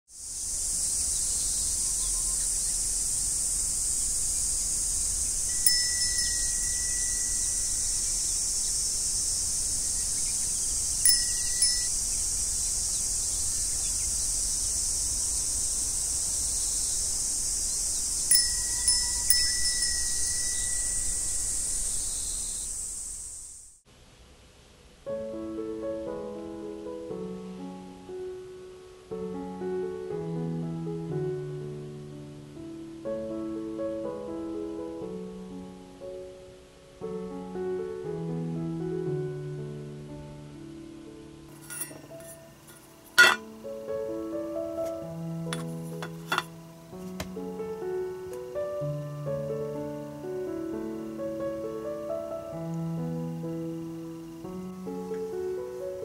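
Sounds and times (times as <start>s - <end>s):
high-pitched hiss: 0.1s - 56.0s
soft piano music: 4.3s - 9.0s, 9.7s - 15.8s, 17.9s - 22.6s, 25.0s - 56.0s
wind chime ringing: 5.5s - 8.4s, 11.0s - 12.1s, 18.3s - 21.8s, 41.6s - 43.5s.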